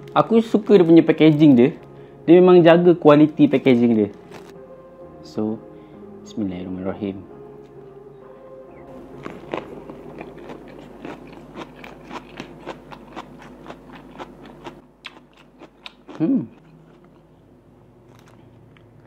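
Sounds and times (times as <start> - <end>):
wet smacking chewing: 9.2 - 17.2.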